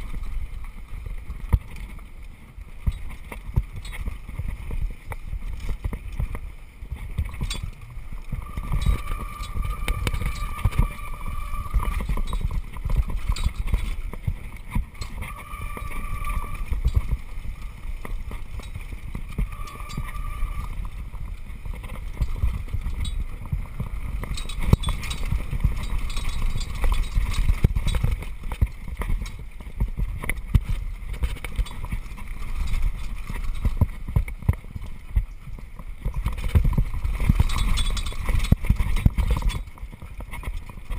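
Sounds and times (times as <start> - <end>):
mountain bike rattling over rocks: 0.0 - 40.9
wind on microphone: 0.0 - 40.9
brakes squealing: 7.2 - 23.4.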